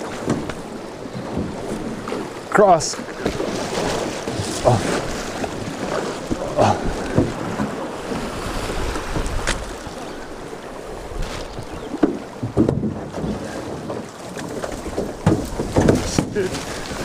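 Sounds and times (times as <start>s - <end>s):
river water rushing and splashing: 0.0s - 17.0s
wind buffeting microphone: 0.0s - 17.0s
sharp knocks: 14.9s - 16.4s.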